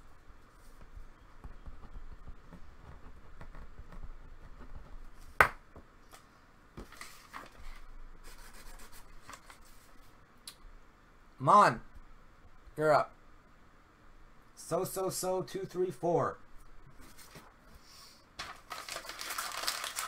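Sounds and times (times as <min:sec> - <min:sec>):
paper rustling: 0:06.8 - 0:10.1, 0:18.4 - 0:20.0
paper rubbing and scratching: 0:07.0 - 0:10.1.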